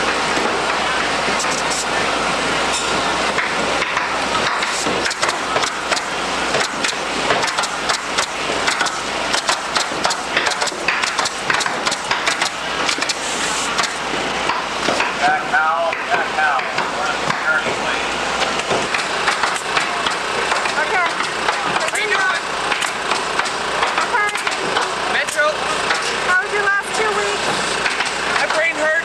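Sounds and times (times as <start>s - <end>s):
pneumatic nailer clacking: 0.0s - 2.0s, 2.7s - 15.2s, 18.4s - 26.3s, 27.4s - 29.0s
steady air hiss: 13.0s - 13.9s.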